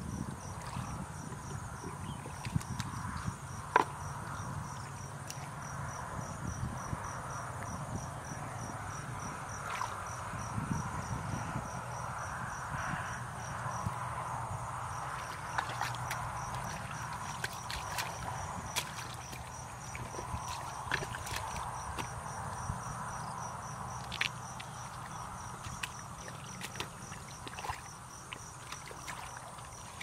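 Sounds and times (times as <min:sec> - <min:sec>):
constant high buzz: 0:00.0 - 0:30.0
insects chirping: 0:00.0 - 0:30.0
hands splashing in muddy water: 0:15.0 - 0:22.6, 0:24.0 - 0:30.0.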